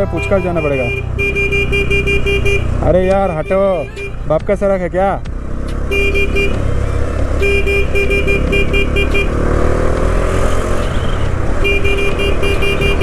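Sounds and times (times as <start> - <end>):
horn beeping: 0.0 - 4.5, 5.8 - 9.4, 10.8 - 13.0
motorcycle engine rumble: 0.0 - 13.0.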